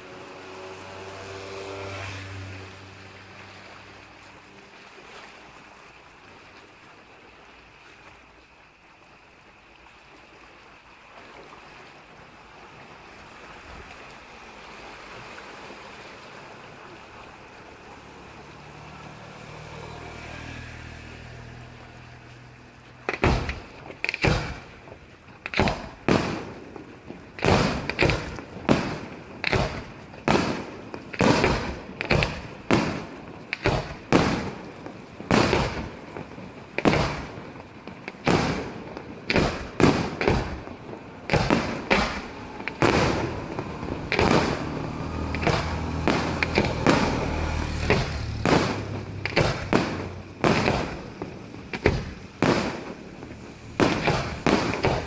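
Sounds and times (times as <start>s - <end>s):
firework fountains hissing: 0.0s - 55.0s
low engine hum: 0.0s - 55.0s
firework shells bursting: 23.1s - 55.0s.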